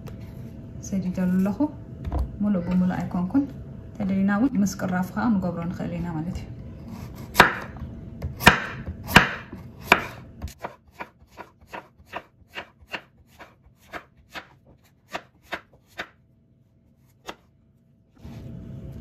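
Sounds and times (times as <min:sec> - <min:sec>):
knife chopping on wooden board: 0:07.1 - 0:16.2, 0:17.1 - 0:17.5.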